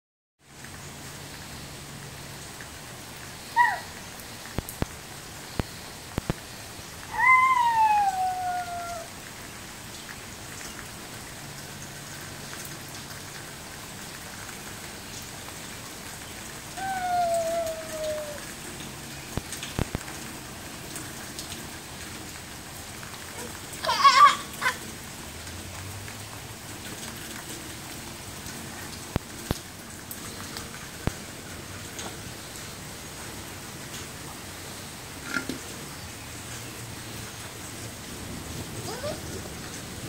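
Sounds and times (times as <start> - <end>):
rain on wet patio: 0.4 - 40.0
toddler calling: 3.6 - 4.0, 7.1 - 9.1, 16.8 - 18.5, 23.4 - 24.8, 38.8 - 39.3.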